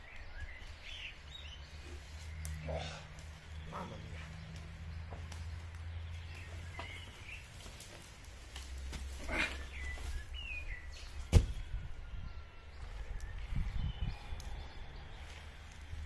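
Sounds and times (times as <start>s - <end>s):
birds chirping: 0.0s - 16.0s
tree trunk thudding onto lawn: 11.2s - 11.7s.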